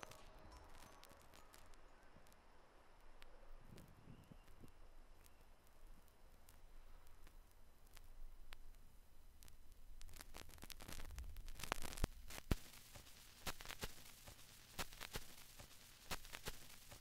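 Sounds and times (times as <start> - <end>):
vinyl crackle: 0.0 - 17.0.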